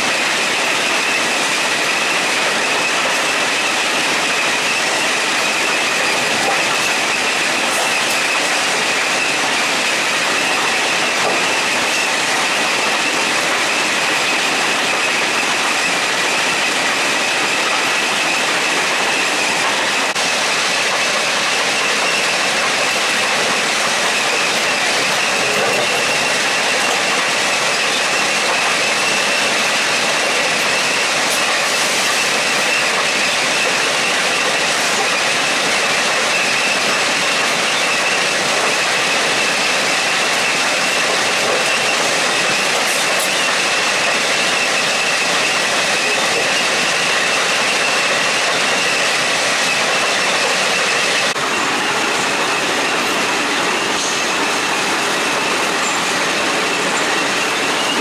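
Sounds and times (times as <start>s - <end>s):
machinery din with high whine: 0.0s - 58.0s.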